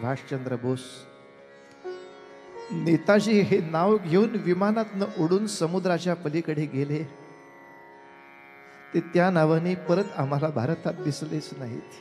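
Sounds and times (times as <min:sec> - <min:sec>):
man's voice: 0:00.0 - 0:01.1, 0:02.7 - 0:07.2, 0:09.0 - 0:12.0
harmonium sustained notes: 0:00.0 - 0:12.0.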